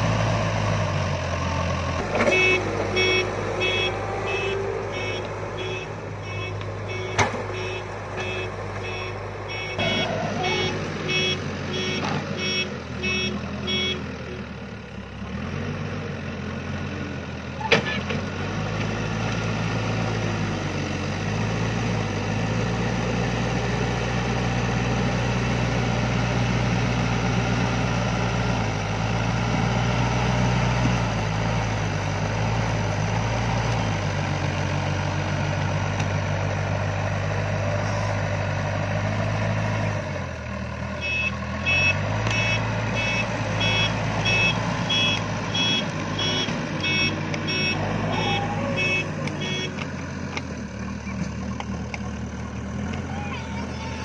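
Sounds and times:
diesel engine under load: 0.0s - 54.0s
reversing alarm beeping: 2.3s - 14.0s, 41.0s - 49.8s.

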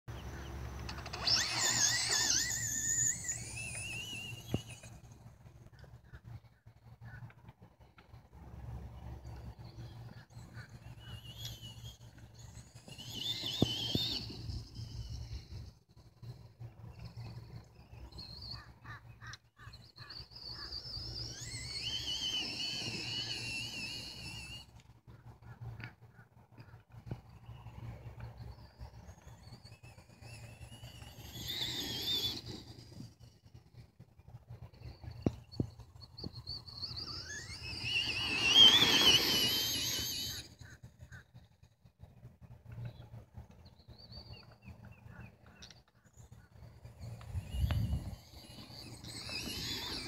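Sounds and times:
electric motor whining: 0.7s - 5.2s, 10.3s - 16.3s, 20.4s - 24.8s, 29.0s - 40.8s, 47.0s - 50.0s.

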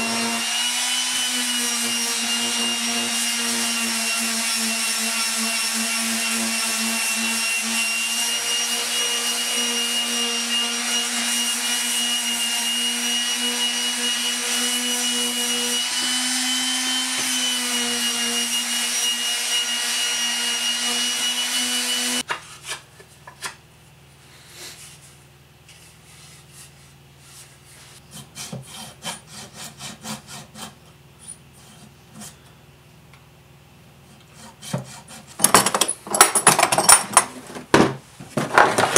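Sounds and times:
electric sander whining on wood: 0.0s - 22.2s.

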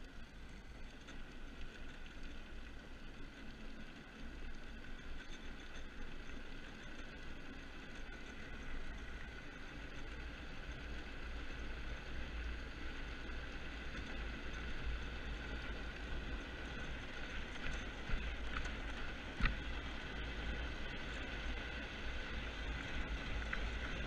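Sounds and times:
hard tyres rolling on concrete: 7.8s - 24.0s.

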